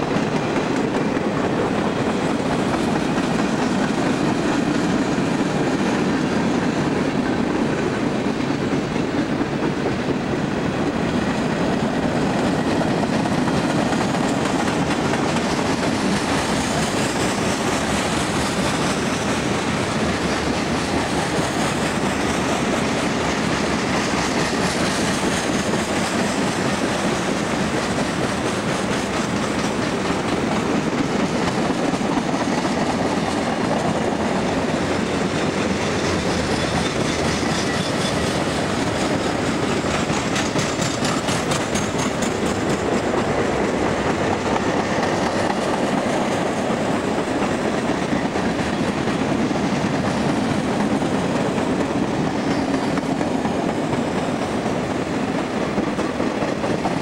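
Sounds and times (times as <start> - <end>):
train wheels on rail: 0.0 - 57.0
clicking over rail joints: 11.2 - 54.3.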